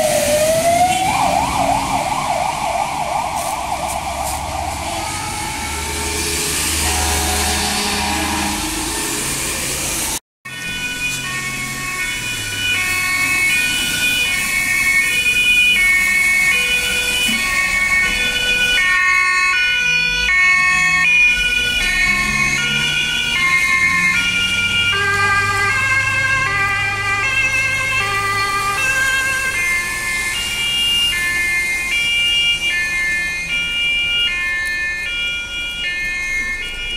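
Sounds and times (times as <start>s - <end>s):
vehicle engine: 0.0s - 14.6s, 20.6s - 31.2s
two-tone sirens: 0.0s - 36.9s.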